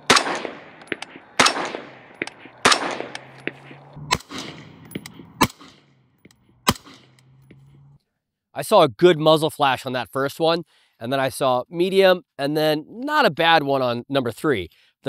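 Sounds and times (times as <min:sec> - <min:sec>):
suppressed rifle shots: 0:00.0 - 0:07.6.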